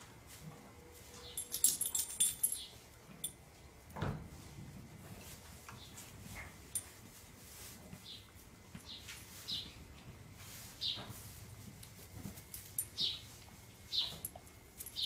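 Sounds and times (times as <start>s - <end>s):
metallic jingling: 1.3s - 3.4s, 14.0s - 15.0s.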